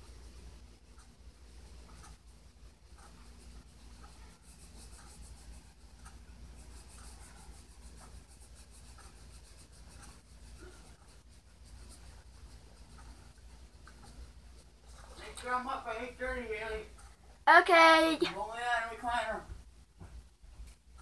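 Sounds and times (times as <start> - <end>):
marker rubbing on paper: 1.9 - 15.7.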